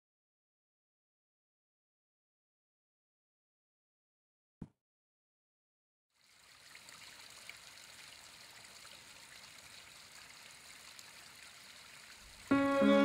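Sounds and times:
small splashes: 6.2 - 12.6.

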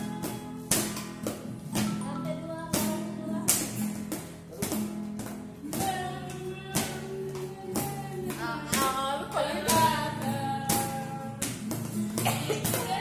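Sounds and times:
acoustic guitar strumming: 0.0 - 13.0
people singing along: 7.7 - 11.4.

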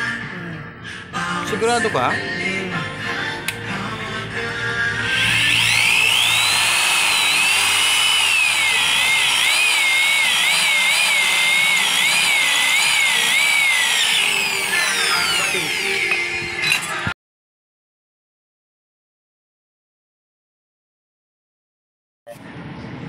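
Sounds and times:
electric drill whining through metal: 5.0 - 17.2.

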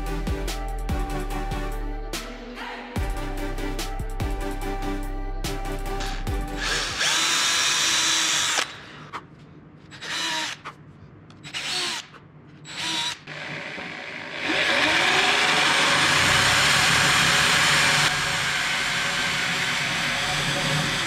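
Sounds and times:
corded drill running loudly: 6.6 - 8.8, 10.0 - 10.6, 11.5 - 12.1, 12.7 - 21.0
cordless drill whining: 6.6 - 8.9, 9.9 - 10.6, 11.4 - 12.1, 12.7 - 21.0.

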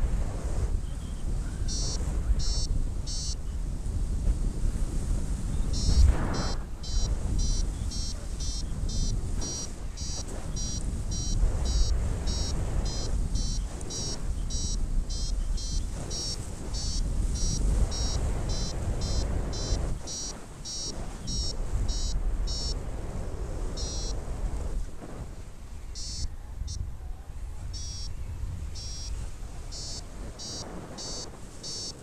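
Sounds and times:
wind on microphone: 0.0 - 32.0
variometer short high beeps: 1.6 - 3.4, 5.7 - 22.8, 23.8 - 24.2, 26.0 - 26.9, 27.7 - 28.2, 28.8 - 32.0.

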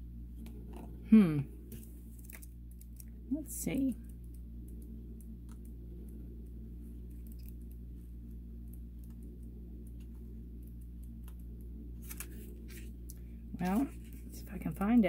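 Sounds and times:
steady low hum: 0.0 - 15.0
paper pages rustling: 12.0 - 14.4.

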